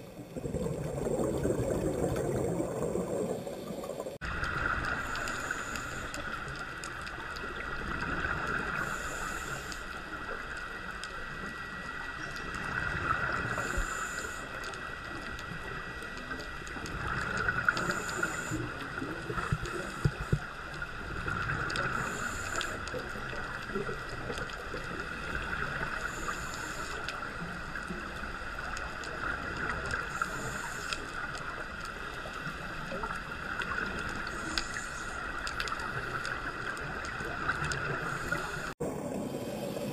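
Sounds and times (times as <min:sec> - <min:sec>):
exhaled bubbles: 0:00.0 - 0:06.0
diver breathing through regulator: 0:05.0 - 0:06.3, 0:08.7 - 0:10.0, 0:13.4 - 0:14.6, 0:17.7 - 0:18.8, 0:21.8 - 0:23.0, 0:25.9 - 0:27.1, 0:30.0 - 0:31.2, 0:37.8 - 0:38.8.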